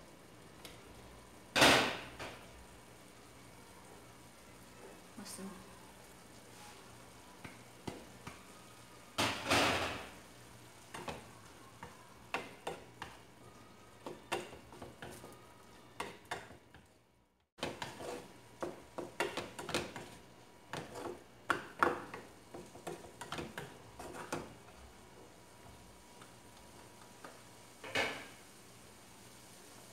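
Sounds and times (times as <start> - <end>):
spatula scraping frying pan: 17.6 - 21.3, 22.6 - 24.6.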